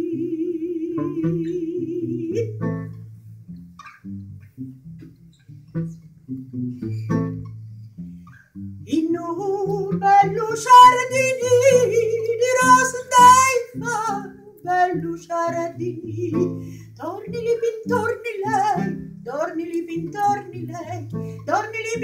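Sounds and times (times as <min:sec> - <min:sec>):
woman singing with vibrato: 0:00.0 - 0:02.7, 0:08.9 - 0:22.0
classical guitar plucking: 0:00.0 - 0:22.0.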